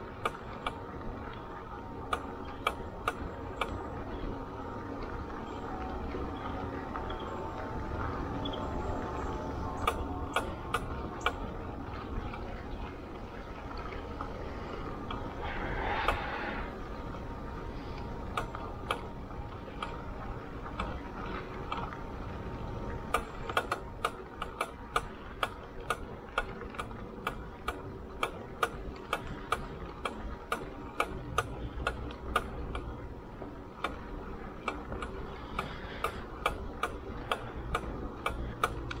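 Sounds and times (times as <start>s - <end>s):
sharp ticks from bike: 0.0s - 12.6s, 13.4s - 16.8s, 17.6s - 39.0s
tyres rolling on gravel: 0.0s - 15.6s, 16.3s - 39.0s.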